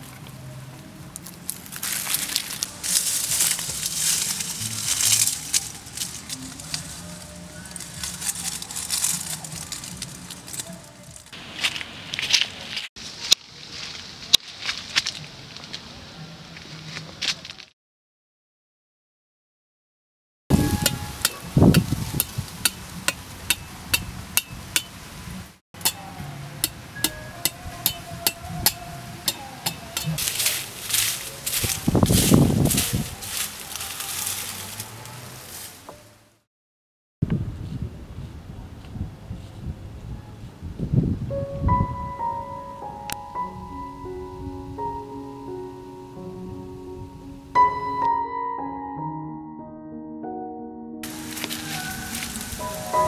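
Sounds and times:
dry leaves and twigs crunching: 0.0 - 17.7, 20.5 - 25.2, 25.9 - 36.2, 51.0 - 53.0
sticks snapping: 7.8 - 10.8, 20.8 - 25.0, 25.8 - 31.8
blade tapping bamboo pole: 20.8 - 25.0, 25.8 - 30.3.

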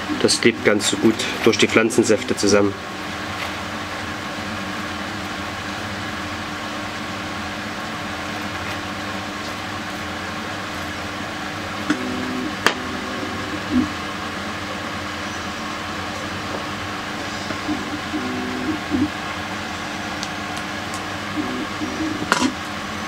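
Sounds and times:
mechanical hum: 0.0 - 23.0
second droning tone: 11.8 - 20.2, 21.2 - 22.6.

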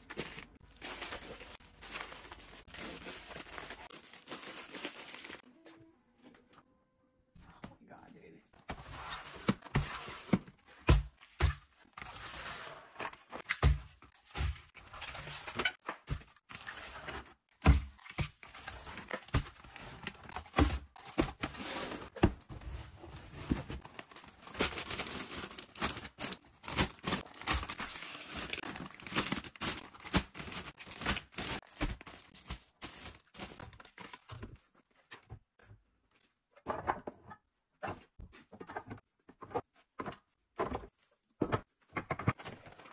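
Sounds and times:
packaging crinkling: 0.0 - 5.4, 23.8 - 34.2.

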